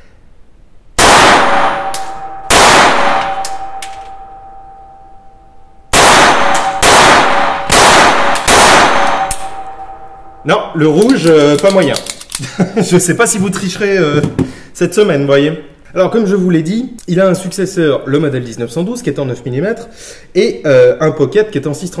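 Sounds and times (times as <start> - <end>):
pistol shots: 1.0 - 4.3, 5.9 - 10.0.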